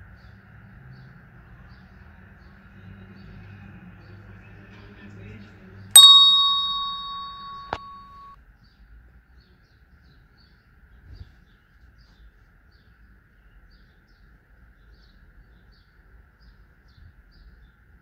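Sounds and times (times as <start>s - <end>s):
sharp click: 6.0s - 8.2s
bell-like chime: 6.0s - 8.3s.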